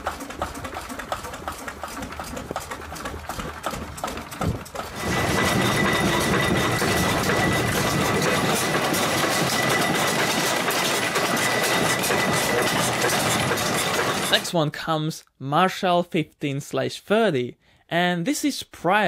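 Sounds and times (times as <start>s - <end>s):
diesel engine running: 0.0s - 14.5s.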